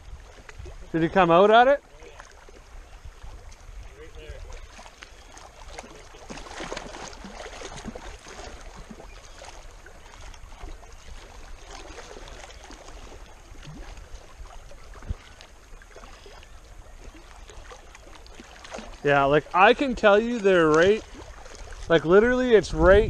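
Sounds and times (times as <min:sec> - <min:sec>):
wind on microphone: 0:00.0 - 0:01.3, 0:02.6 - 0:09.2, 0:13.0 - 0:17.2, 0:18.8 - 0:23.0
waves lapping on rocky shore: 0:00.0 - 0:23.0.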